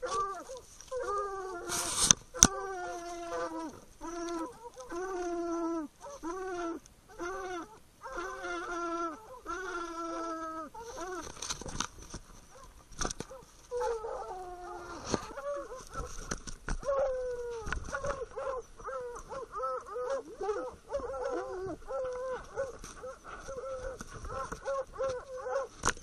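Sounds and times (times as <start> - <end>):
hounds baying and barking: 0.0 - 11.4, 12.4 - 16.2, 16.8 - 26.0
branches knocking against camera: 10.9 - 14.0, 14.8 - 26.0.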